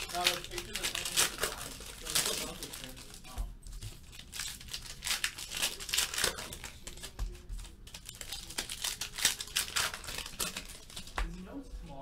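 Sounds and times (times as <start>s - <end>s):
card pack wrapper tearing: 0.0s - 3.2s, 4.1s - 7.1s, 7.9s - 11.1s.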